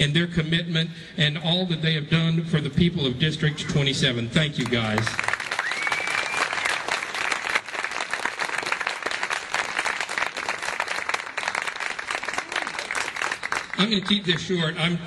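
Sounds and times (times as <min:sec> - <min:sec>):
crowd applauding: 0:04.6 - 0:14.7.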